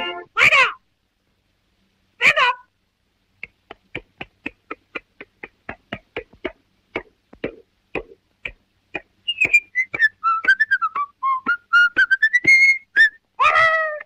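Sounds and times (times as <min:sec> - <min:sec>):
whistle gliding in pitch: 0:09.3 - 0:13.2.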